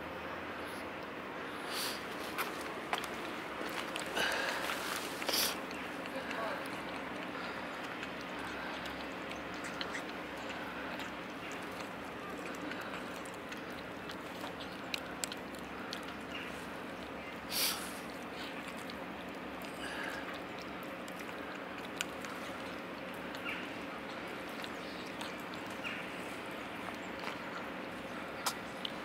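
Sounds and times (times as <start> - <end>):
background hum: 0.0 - 29.0
cats crunching dry kibble: 1.8 - 29.0
cat hiss: 17.5 - 18.0.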